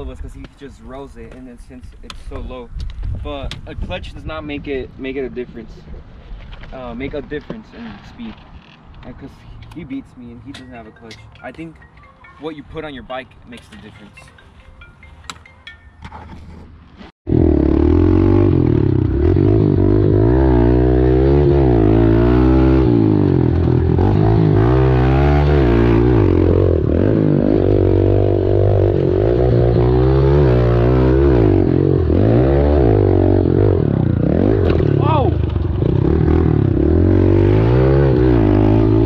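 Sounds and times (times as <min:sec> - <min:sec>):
small motorbike engine revving: 0:17.3 - 0:39.0.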